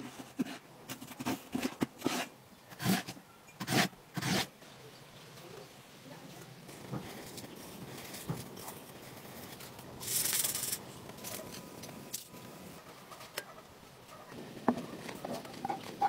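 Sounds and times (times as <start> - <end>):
loud hissing rush: 9.9 - 11.1.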